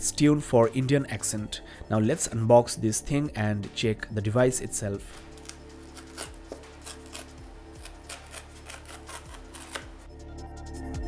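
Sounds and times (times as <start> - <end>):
background music with held tones: 0.0 - 11.0
cardboard tear strip pulled open: 5.3 - 10.0.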